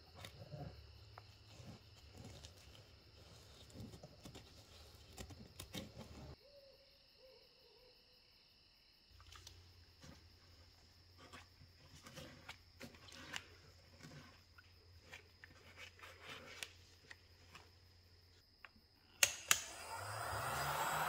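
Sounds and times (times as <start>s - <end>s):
heat gun switch clicks: 19.2s - 19.9s
heat gun fan blowing: 19.2s - 21.0s.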